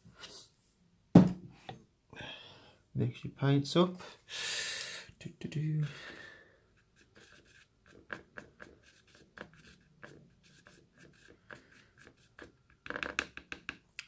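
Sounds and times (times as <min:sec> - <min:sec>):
paintbrush tapping and scraping: 0:06.8 - 0:13.8.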